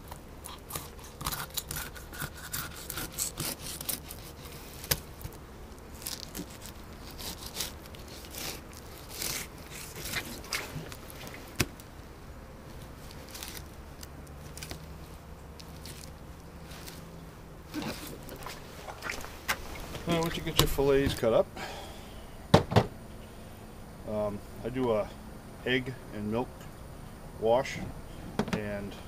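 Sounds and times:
knife scraping fish: 0.4s - 5.0s, 6.1s - 11.4s.

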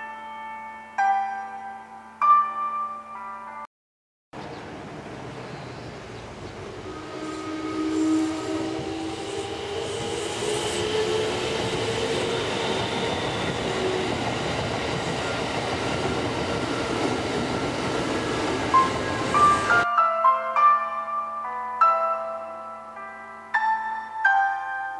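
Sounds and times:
train passing on rails: 4.5s - 19.9s.

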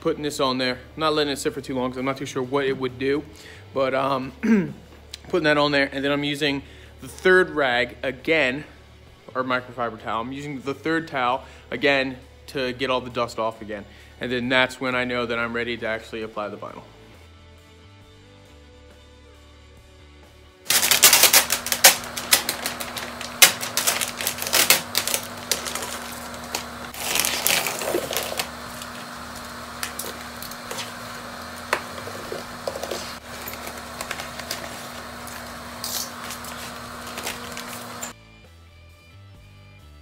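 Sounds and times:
faint background music: 0.0s - 22.0s
vinyl film crinkling: 20.7s - 38.1s
steady low hum: 20.8s - 38.2s.

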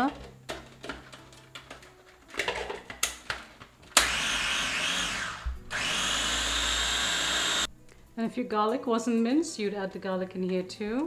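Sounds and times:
food processor motor whining: 4.0s - 7.7s.

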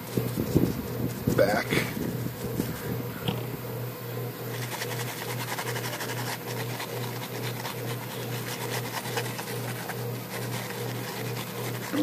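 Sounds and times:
low pulsing hum: 0.0s - 12.0s
wire brush scrubbing metal: 4.4s - 12.0s.

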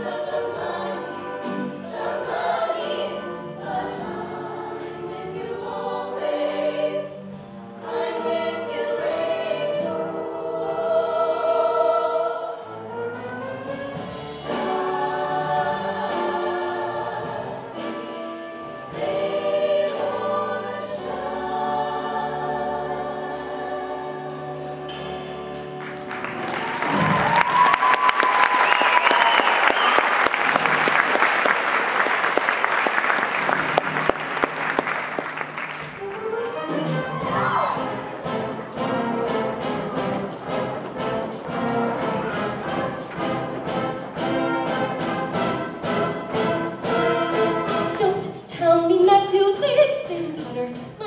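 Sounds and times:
choir singing: 0.0s - 27.2s, 36.1s - 48.5s
audience applause and cheering: 25.7s - 38.2s.

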